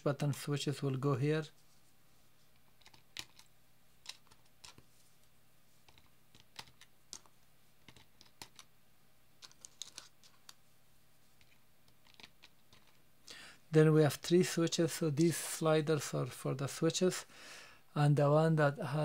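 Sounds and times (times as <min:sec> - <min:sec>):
plastic parts clicking: 0:02.6 - 0:04.8, 0:05.9 - 0:08.7, 0:09.4 - 0:10.6, 0:11.4 - 0:13.0.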